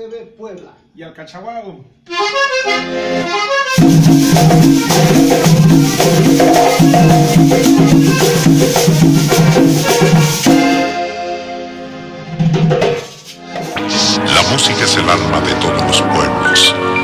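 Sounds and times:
button accordion: 2.1 - 12.4, 13.2 - 17.0
metal scraper rhythm: 3.7 - 10.5
drums: 3.7 - 11.0, 12.3 - 14.5
bass notes: 13.7 - 16.9.

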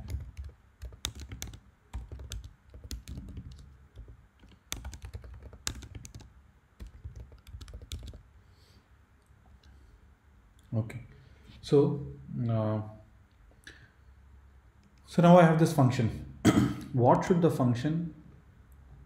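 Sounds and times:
typing on computer keyboard: 0.0 - 8.3.

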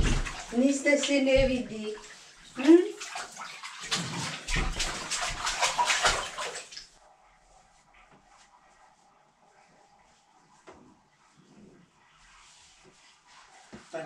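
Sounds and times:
water splashing in bathtub: 0.0 - 7.0.

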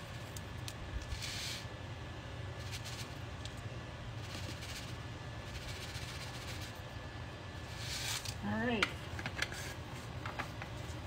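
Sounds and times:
steady low hum: 0.0 - 11.0
flakes pouring with a hiss: 1.0 - 1.7, 7.7 - 8.3.

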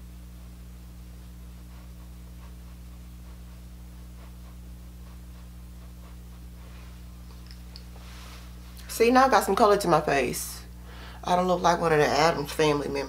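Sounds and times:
low electrical hum: 0.0 - 13.0
makeup brush brushing skin: 1.5 - 8.8.

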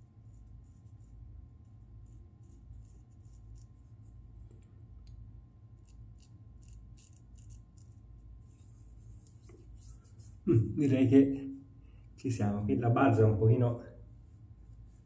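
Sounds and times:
razor scraping stubble: 2.2 - 4.0, 5.7 - 8.1.

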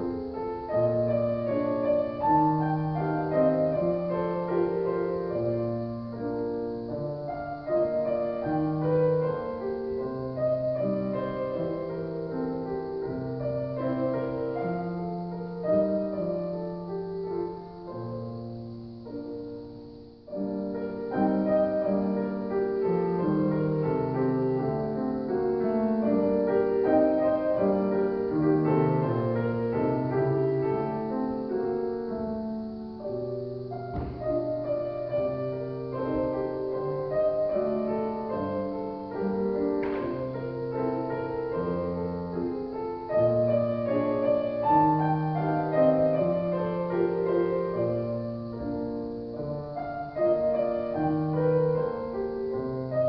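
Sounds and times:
solo piano piece: 0.0 - 53.0
sharp click: 39.8 - 40.2.

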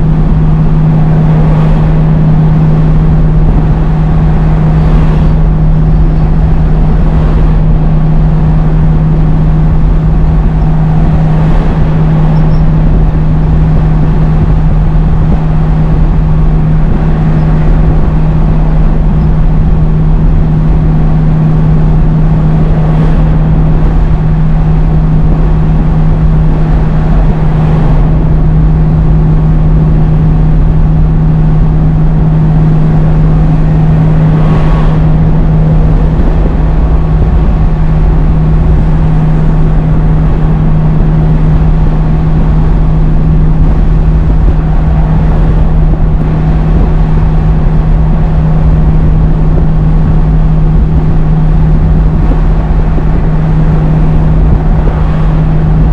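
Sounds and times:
diesel truck engine droning: 0.0 - 55.9
road rumble: 0.0 - 55.9
cars swishing past: 31.4 - 41.3.

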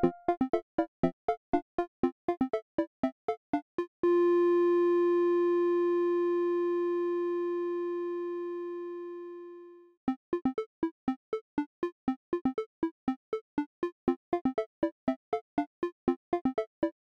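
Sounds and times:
quick plucked synth notes: 0.0 - 0.3.

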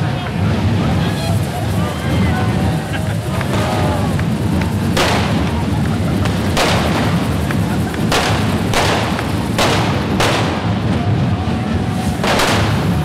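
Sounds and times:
loud din: 0.3 - 13.0
firecracker bangs: 0.4 - 13.0.

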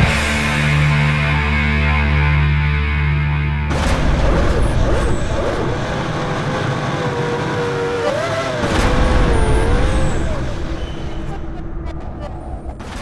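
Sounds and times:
race car engine high revs: 4.4 - 11.4.

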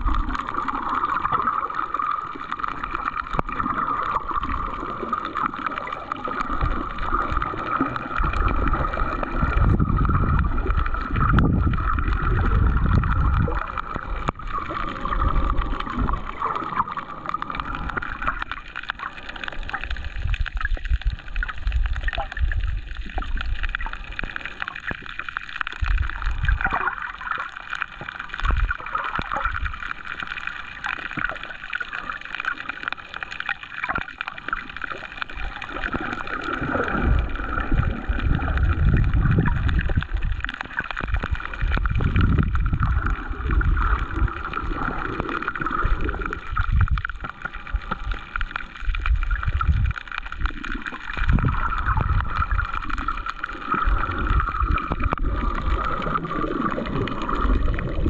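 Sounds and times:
water surging and gurgling: 0.0 - 58.0.

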